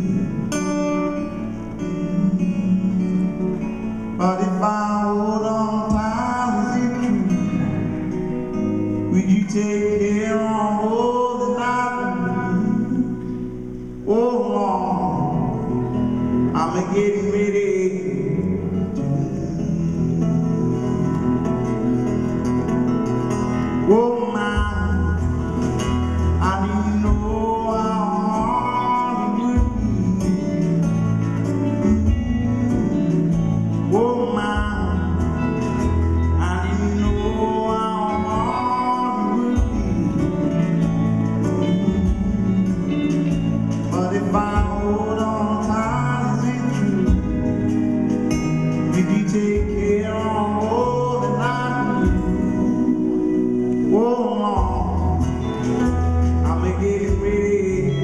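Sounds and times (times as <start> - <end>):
acoustic guitar: 0.0 - 58.0
electric guitars: 0.0 - 58.0
man singing: 0.0 - 58.0
drums: 5.4 - 11.6, 12.2 - 58.0.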